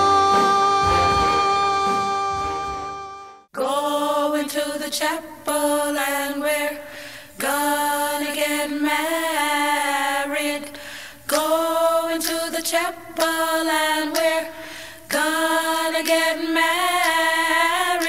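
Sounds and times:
unaccompanied singing: 3.6 - 18.0.

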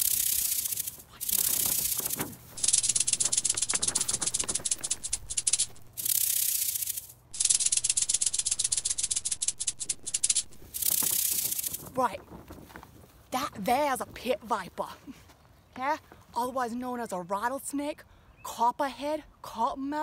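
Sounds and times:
rattlesnake rattling: 0.0 - 12.0.

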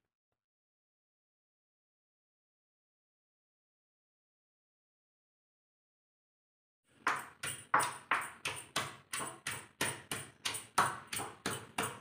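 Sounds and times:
stone pestle pounding in mortar: 7.1 - 12.0.

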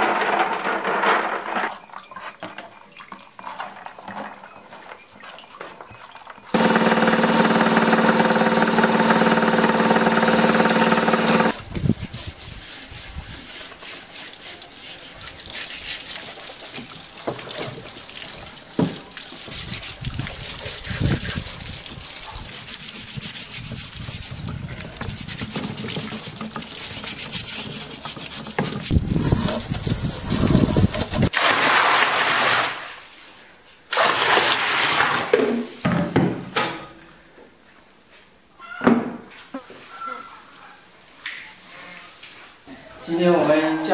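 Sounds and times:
hose water splashing on wood: 4.8 - 33.1, 33.9 - 35.4
water pouring into a wok: 31.3 - 33.0, 33.9 - 35.3.

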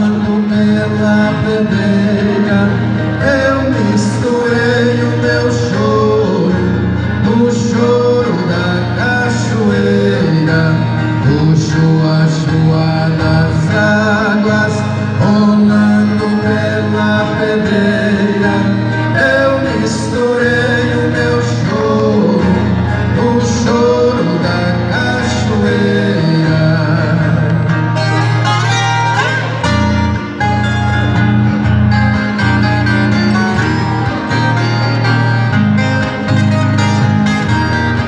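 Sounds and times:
two men singing: 0.0 - 27.8
strummed guitars: 0.0 - 38.0.

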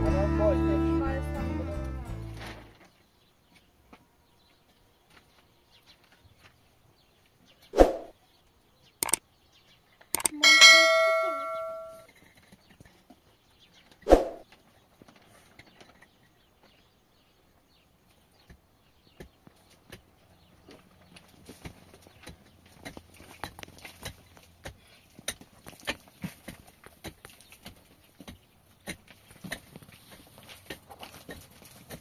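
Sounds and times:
ringing metallic clang: 10.2 - 12.0.

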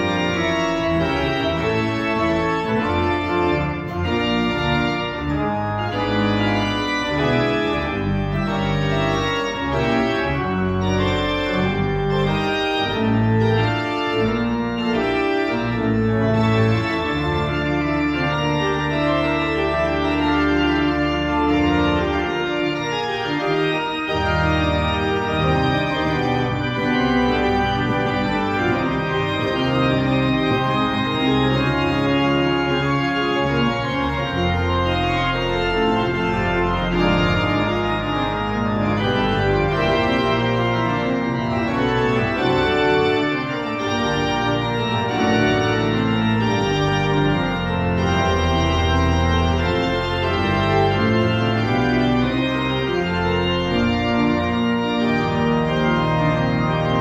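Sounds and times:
pipe organ playing: 0.0 - 57.0.

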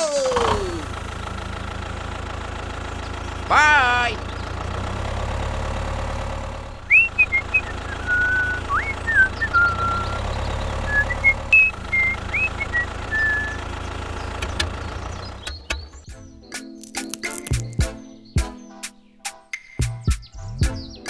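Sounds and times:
tractor engine idling: 0.0 - 17.8
high whistled notes: 6.9 - 10.2, 10.8 - 13.6
sharp clicks: 16.7 - 17.9.

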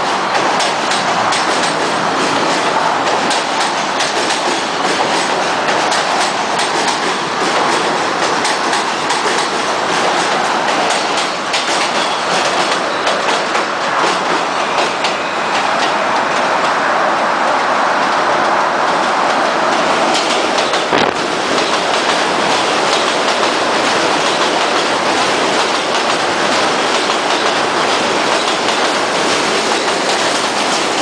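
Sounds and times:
subway train rumbling: 0.0 - 31.0
wheels clicking over rail joints: 0.3 - 15.2.

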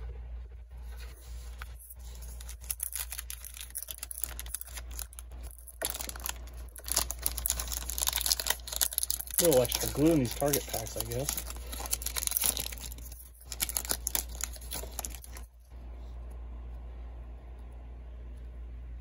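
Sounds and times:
foil wrapper crinkling and tearing: 0.8 - 15.6.

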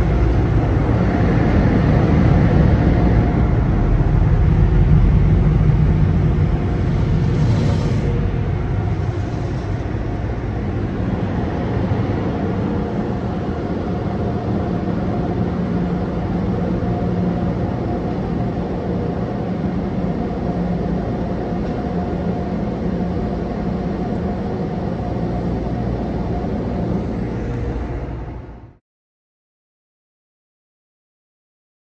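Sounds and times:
car wash machinery whooshing: 0.0 - 28.8
low drone: 0.0 - 28.8.

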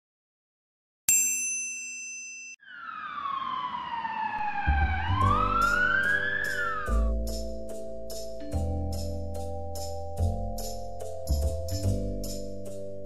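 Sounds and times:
ambulance siren wailing: 2.6 - 7.2
music with bass and drum beat: 6.9 - 12.9.

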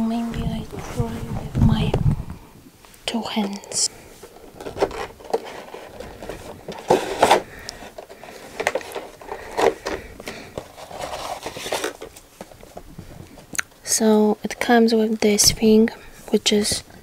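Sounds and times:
plastic tray scraping and crackling: 3.2 - 13.5
clicks and rustles: 3.3 - 13.8.

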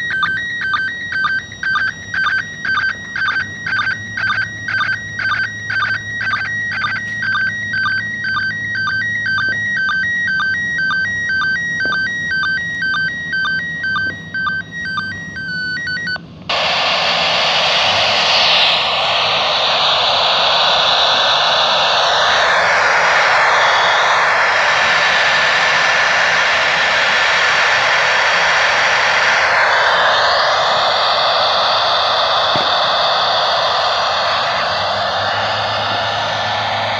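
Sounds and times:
radio static hiss: 16.5 - 36.9
warbling radio signal tones: 16.5 - 36.9.

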